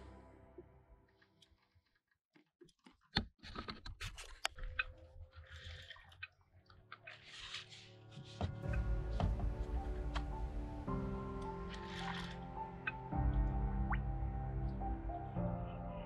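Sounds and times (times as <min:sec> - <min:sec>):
background music: 0:00.0 - 0:01.2, 0:06.9 - 0:16.0.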